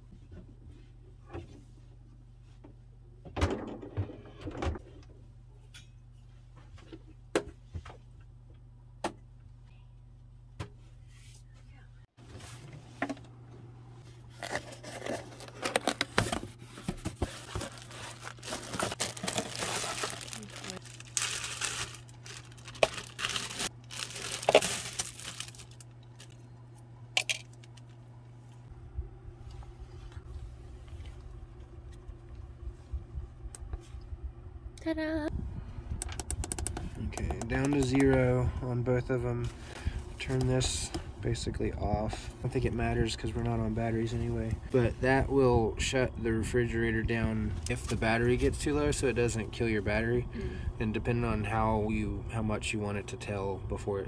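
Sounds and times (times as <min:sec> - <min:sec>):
low steady hum: 0:00.0 - 0:54.0
plastic bag crinkling: 0:17.3 - 0:26.4.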